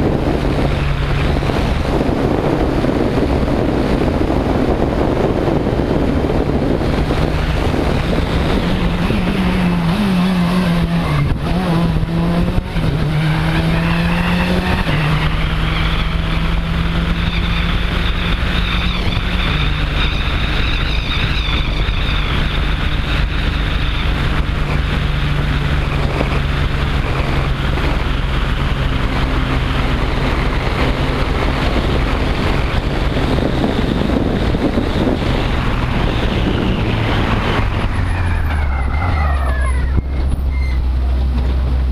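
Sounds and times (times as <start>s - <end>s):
rally car engine driving: 0.0s - 41.9s
air rushing over microphone: 20.5s - 41.0s.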